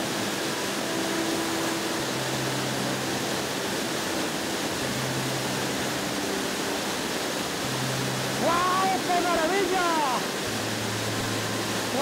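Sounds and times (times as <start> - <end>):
waterfall rushing onto rocks: 0.0 - 12.0.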